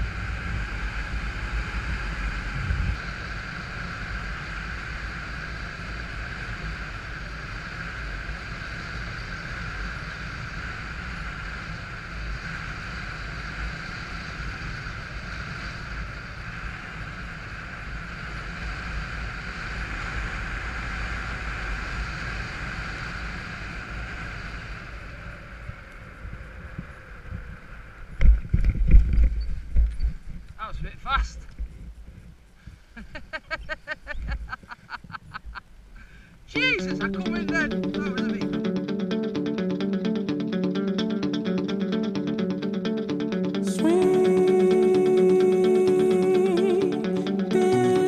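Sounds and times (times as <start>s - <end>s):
paramotor engine and propeller: 0.0s - 28.3s
wind rush: 0.0s - 32.4s.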